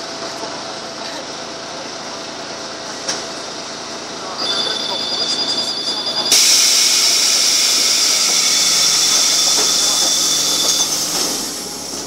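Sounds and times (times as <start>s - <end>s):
bus air hiss: 6.3s - 12.0s.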